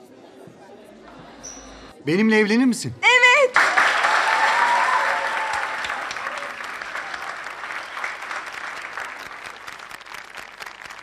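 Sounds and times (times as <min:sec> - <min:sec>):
crowd applauding: 0:03.5 - 0:11.0.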